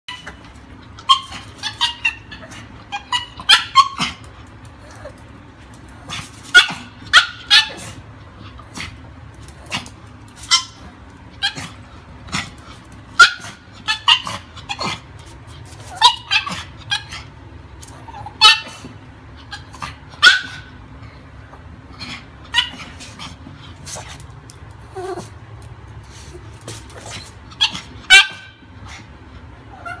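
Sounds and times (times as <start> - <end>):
small dog yipping: 1.0 - 4.3, 6.5 - 8.0, 10.4 - 11.8, 13.2 - 14.9, 15.8 - 17.3, 18.0 - 18.9, 19.5 - 20.7, 22.5 - 23.1, 27.0 - 28.6, 29.7 - 30.0.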